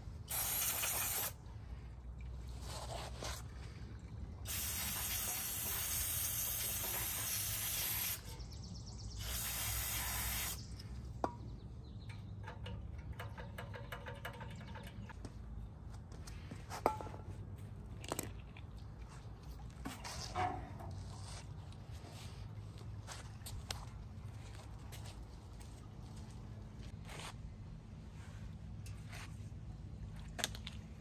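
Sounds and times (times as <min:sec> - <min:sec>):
pressure washer water spraying: 0:00.3 - 0:01.4, 0:04.5 - 0:08.3, 0:09.2 - 0:10.6
light clicks and knocks: 0:12.1 - 0:15.3.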